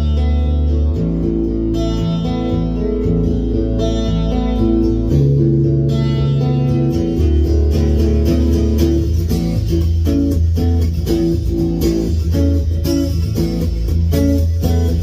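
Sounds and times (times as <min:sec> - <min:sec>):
fingerstyle acoustic guitar: 0:00.0 - 0:15.0.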